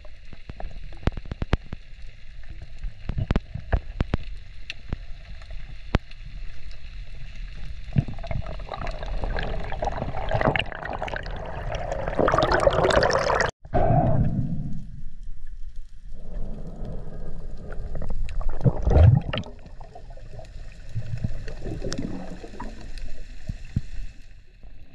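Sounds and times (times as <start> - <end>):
low underwater rumble: 0.0 - 24.9
underwater clicks: 2.6 - 6.8
bubbling gurgling water: 7.0 - 13.5, 16.1 - 24.9.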